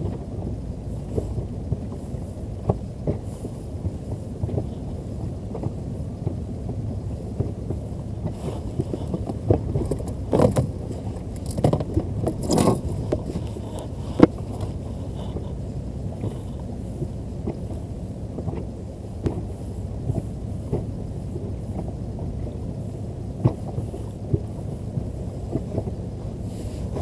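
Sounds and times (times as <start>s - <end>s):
low rumble: 0.0s - 27.0s
knocks and scrapes: 8.2s - 15.6s.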